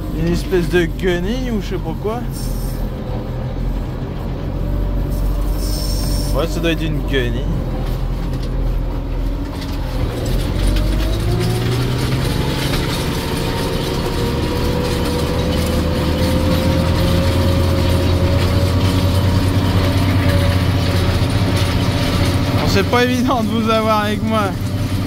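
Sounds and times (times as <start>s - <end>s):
mechanical whine: 0.0s - 7.4s
cab rattling: 0.0s - 25.0s
tractor engine under load: 0.0s - 25.0s.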